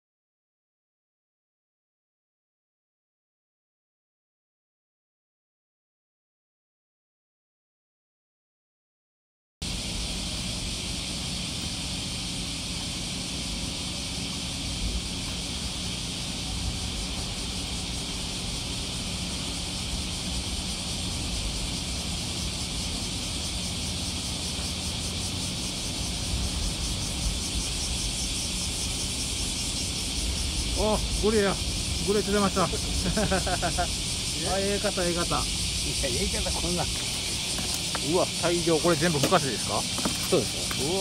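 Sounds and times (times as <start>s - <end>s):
cicada chorus drone: 9.6s - 41.0s
low rumble: 25.3s - 37.5s.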